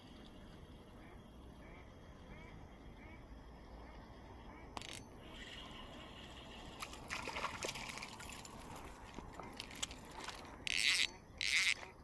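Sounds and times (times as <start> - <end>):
water trickling: 5.8 - 10.7
fish splashing at water surface: 6.7 - 10.5.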